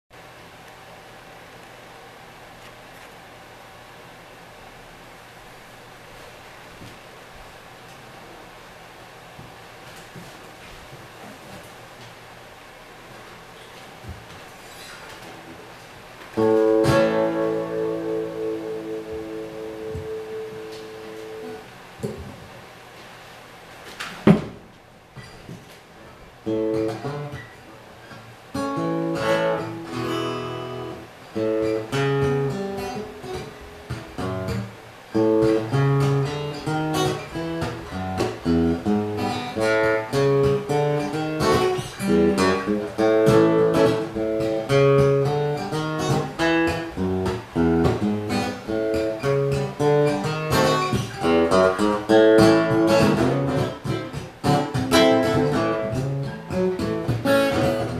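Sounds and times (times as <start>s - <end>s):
acoustic guitar strumming: 14.6s - 22.3s, 26.4s - 57.9s
sharp knock: 24.2s - 24.6s.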